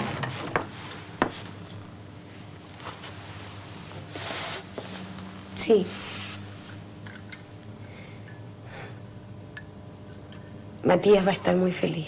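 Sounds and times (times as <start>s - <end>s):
low electrical hum: 0.0s - 12.0s
soft rustle: 2.7s - 6.6s.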